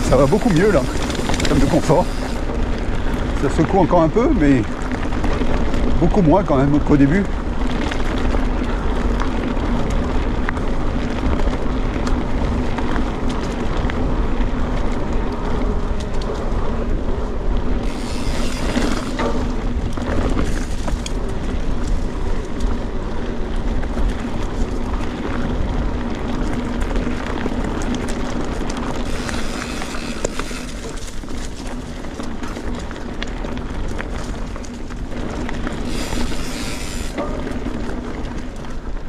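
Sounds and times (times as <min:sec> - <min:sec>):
bike tyres rolling on rocky trail: 0:00.0 - 0:39.0
wind on microphone: 0:00.0 - 0:39.0
bike knocks and rattles: 0:17.6 - 0:39.0.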